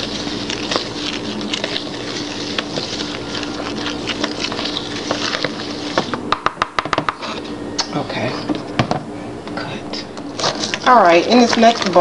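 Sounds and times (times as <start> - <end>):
spoon stirring dry ingredients: 0.0 - 6.2
steady low hum: 0.0 - 12.0.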